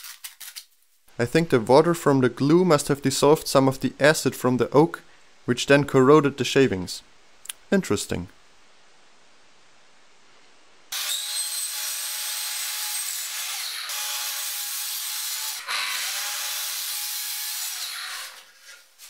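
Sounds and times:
saw blade cutting wood: 10.9s - 18.9s.

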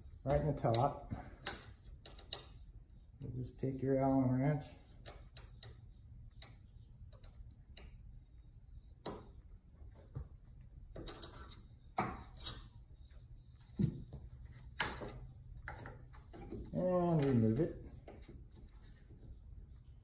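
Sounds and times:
wrench clicks and taps: 0.3s - 2.6s, 5.0s - 8.0s.

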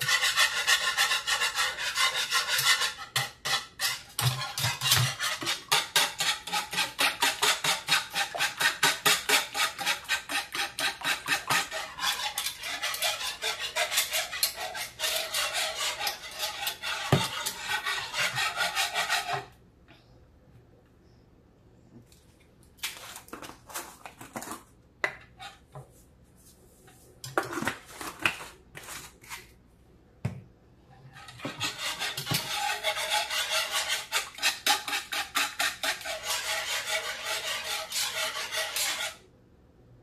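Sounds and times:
whisk scraping ceramic bowl: 0.0s - 19.6s, 31.1s - 39.3s.

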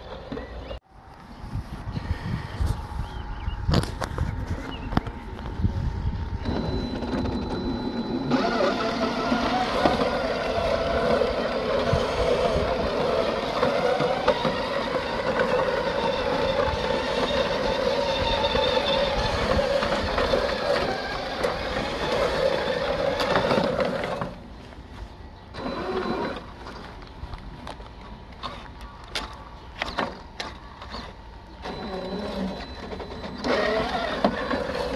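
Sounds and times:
electric motor whining: 2.6s - 24.4s, 25.5s - 26.8s, 30.8s - 34.9s
reel mower blades spinning: 6.4s - 24.4s, 31.6s - 34.9s.

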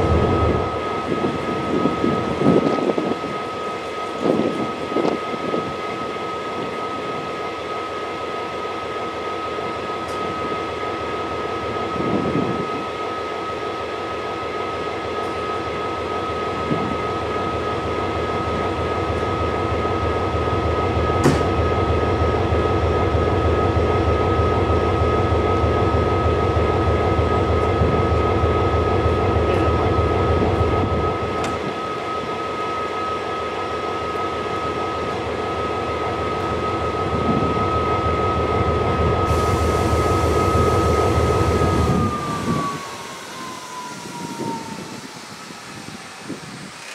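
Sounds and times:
diesel locomotive idling: 0.0s - 46.9s
high-pitched whine: 22.0s - 46.9s.

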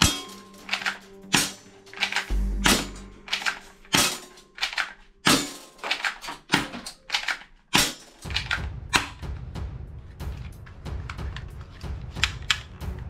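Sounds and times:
toy guns clattering: 0.0s - 8.7s.

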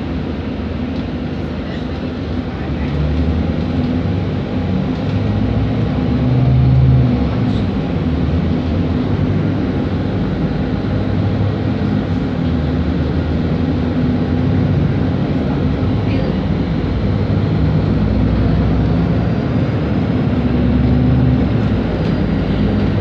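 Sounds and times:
bus diesel engine drone: 0.0s - 23.0s
tyre and road noise: 1.7s - 23.0s.

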